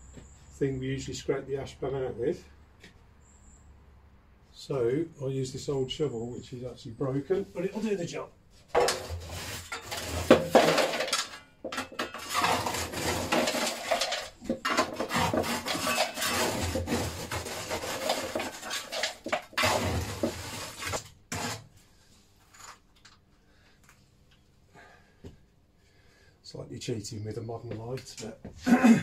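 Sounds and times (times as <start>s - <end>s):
metal shovel scraping ash: 8.7s - 21.7s.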